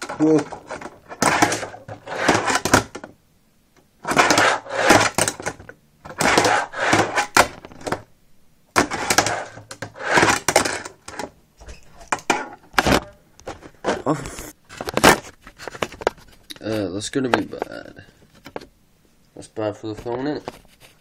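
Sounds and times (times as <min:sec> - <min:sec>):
fingerboard wheels rolling: 0:00.0 - 0:03.0, 0:04.0 - 0:08.0, 0:08.8 - 0:11.3.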